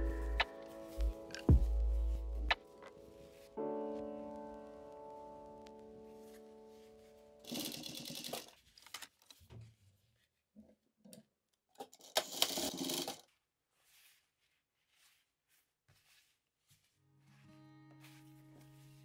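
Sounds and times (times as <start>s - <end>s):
soft guitar music: 0.0s - 7.0s, 17.1s - 19.0s
sewing machine stitching: 7.5s - 8.5s, 12.0s - 13.2s.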